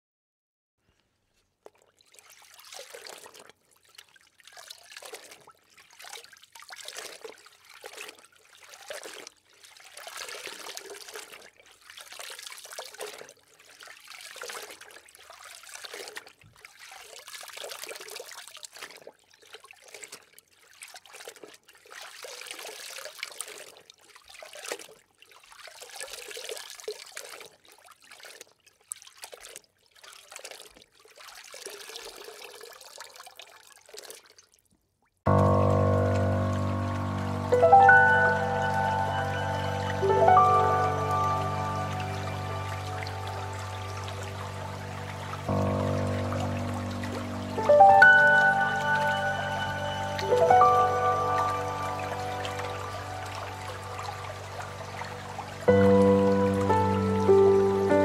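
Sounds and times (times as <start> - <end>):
water rushing and bubbling: 35.3 - 58.0.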